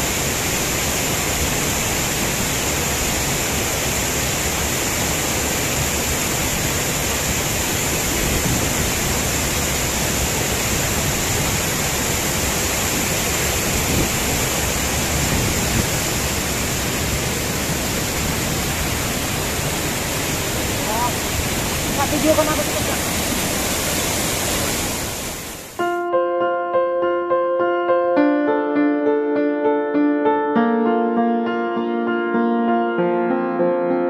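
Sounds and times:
stream rushing over boulders: 0:00.0 - 0:25.8.

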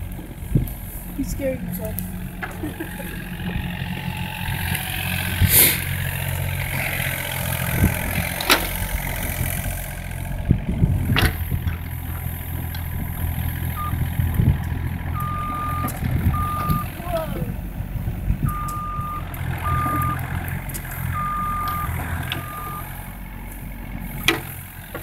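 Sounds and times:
diesel engine running: 0:00.0 - 0:25.0
hydraulics working: 0:00.0 - 0:25.0
warning alarm beeping: 0:13.8 - 0:14.0, 0:15.2 - 0:17.4, 0:18.4 - 0:20.2, 0:21.1 - 0:22.9.

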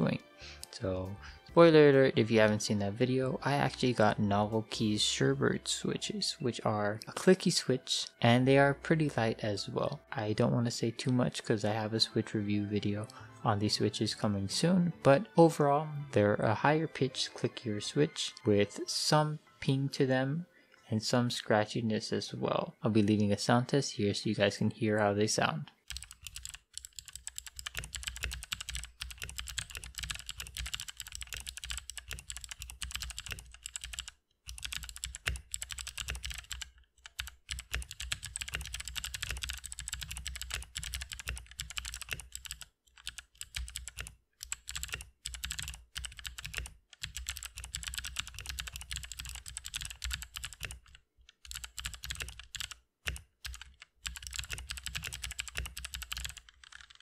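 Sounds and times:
clicky mechanical keyboard typing: 0:25.9 - 0:57.0.

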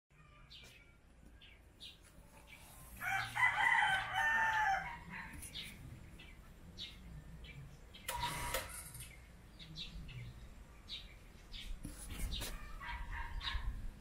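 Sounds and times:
rooster crowing: 0:03.0 - 0:05.3.

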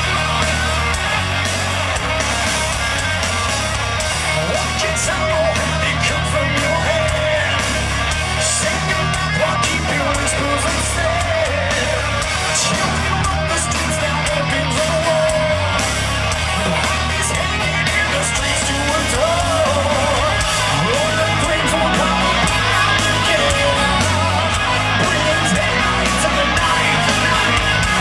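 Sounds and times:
heavy metal band playing live: 0:00.0 - 0:28.0
wavering lead guitar line: 0:00.0 - 0:28.0.

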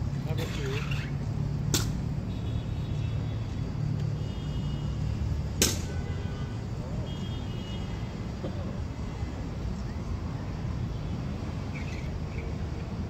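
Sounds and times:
road traffic hum: 0:00.0 - 0:13.0
sharp clack: 0:01.7 - 0:02.0, 0:05.6 - 0:05.9.

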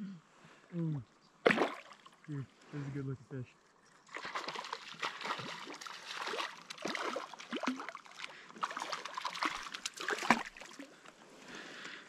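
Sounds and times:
fish splashing in water: 0:01.4 - 0:02.1, 0:04.1 - 0:10.9.

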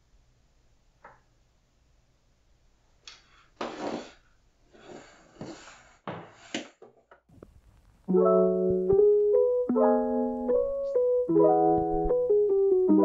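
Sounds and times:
soft piano melody: 0:08.1 - 0:13.0.

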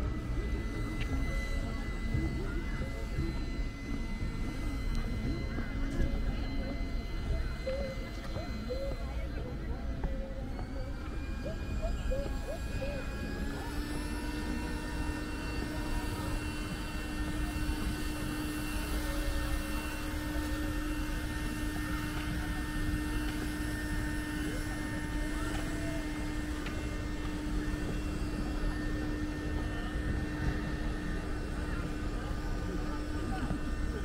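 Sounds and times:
outdoor background noise: 0:00.0 - 0:34.0
steady mechanical hum: 0:00.0 - 0:34.0.

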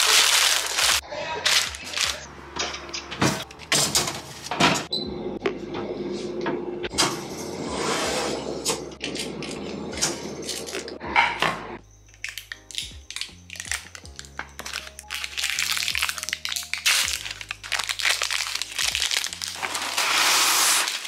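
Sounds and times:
baking paper crinkling: 0:00.0 - 0:02.3, 0:12.2 - 0:21.0
kitchen handling clatters: 0:02.6 - 0:04.9.

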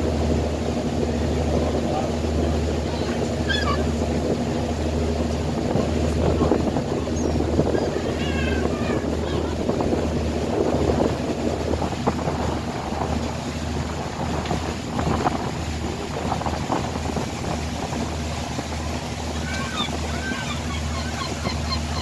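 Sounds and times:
boat engine droning: 0:00.0 - 0:22.0
water rushing past: 0:00.0 - 0:22.0
wind buffeting microphone: 0:00.0 - 0:22.0
seagull cries: 0:03.4 - 0:03.9, 0:07.8 - 0:09.6, 0:19.4 - 0:22.0.

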